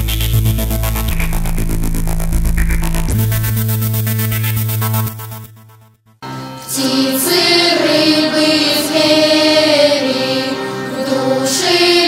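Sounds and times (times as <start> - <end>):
children's choir singing: 6.3 - 12.0.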